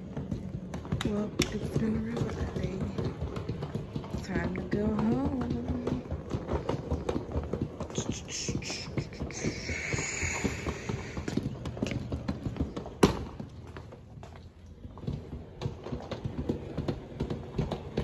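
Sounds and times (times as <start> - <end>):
suitcase knock: 0.0 - 14.4
suitcase wheels clattering on tiles: 0.0 - 18.0.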